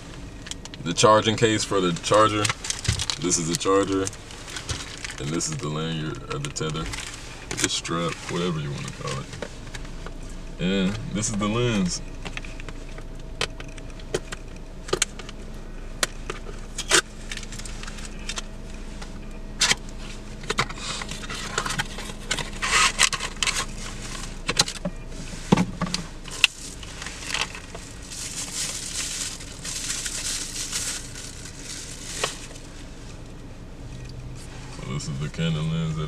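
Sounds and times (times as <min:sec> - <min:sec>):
packaging rustling and crinkling: 0:02.0 - 0:05.5, 0:26.3 - 0:32.8.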